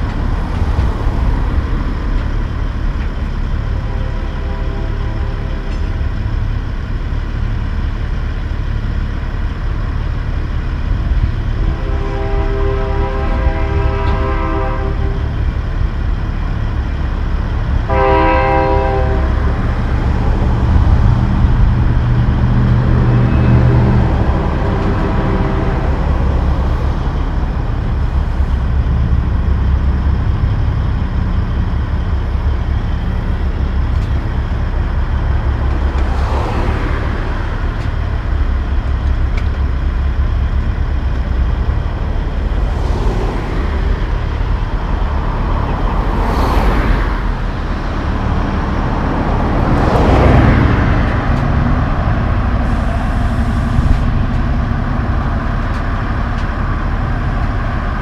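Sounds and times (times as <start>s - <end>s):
diesel truck engine idling: 0.0s - 58.0s
truck horn: 3.6s - 6.0s, 11.5s - 15.5s, 17.8s - 20.1s, 22.8s - 26.8s.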